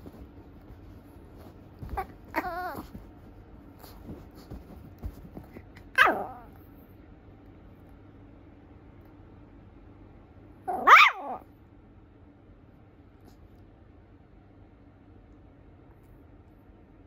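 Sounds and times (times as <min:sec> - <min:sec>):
puppy whining: 0:01.8 - 0:03.1, 0:05.9 - 0:06.6, 0:10.7 - 0:11.4.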